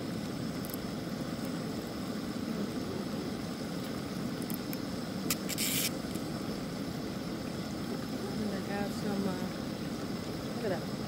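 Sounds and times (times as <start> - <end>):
gas stove flame rushing: 0.0 - 11.0.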